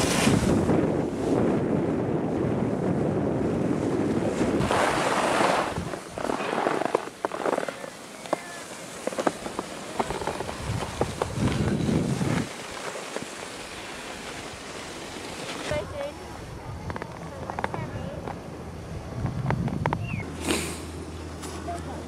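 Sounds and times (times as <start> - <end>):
wind rushing over microphone: 0.0 - 7.2, 9.3 - 12.6, 15.6 - 20.4
skis scraping over packed snow: 0.0 - 16.2.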